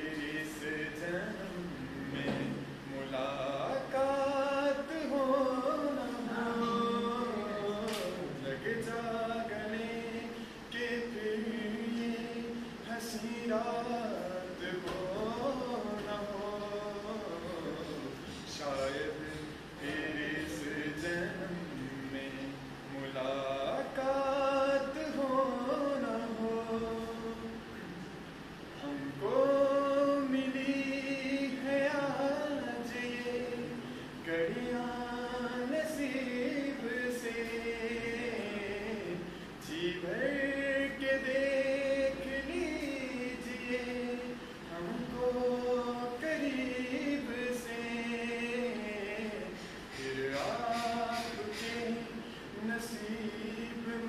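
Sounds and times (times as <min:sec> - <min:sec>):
man singing unaccompanied: 0:00.0 - 0:54.0.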